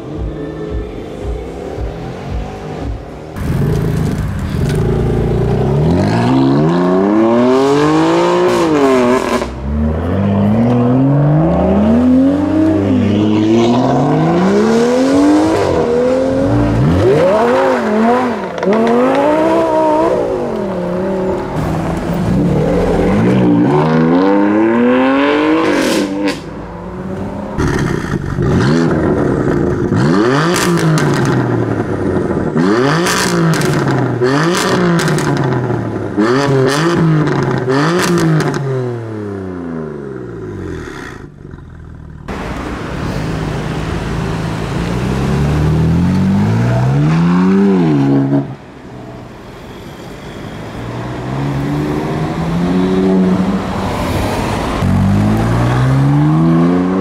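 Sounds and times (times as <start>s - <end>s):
sports car engines accelerating: 0.0s - 49.1s, 51.0s - 57.0s.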